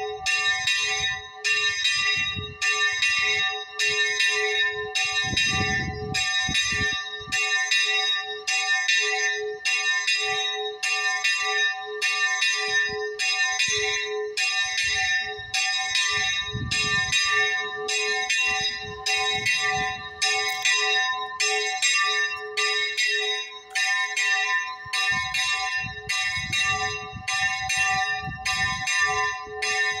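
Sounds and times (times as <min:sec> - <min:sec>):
church bell ringing: 0:00.0 - 0:30.0.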